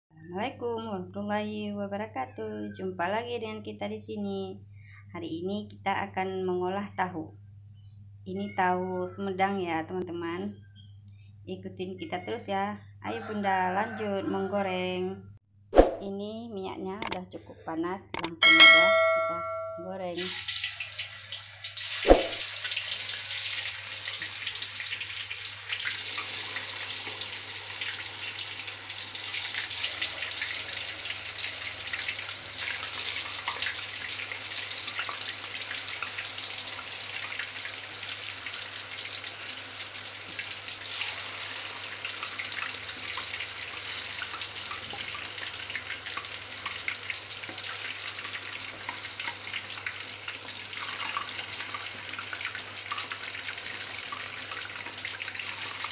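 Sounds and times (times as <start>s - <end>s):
tofu sizzling in hot oil: 20.2s - 55.9s
crackling and popping oil: 31.9s - 37.8s, 40.2s - 55.9s.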